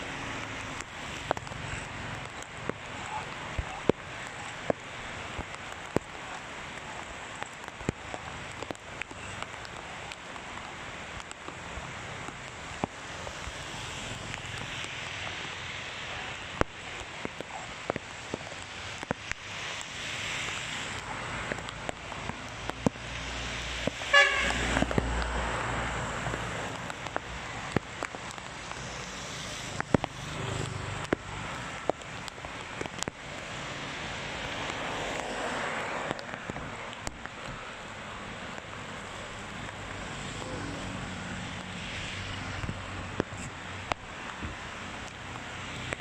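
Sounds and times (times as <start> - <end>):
heavy rain on wet road: 0.0 - 46.0
cars passing: 19.0 - 46.0
car horn toot: 24.1 - 24.6.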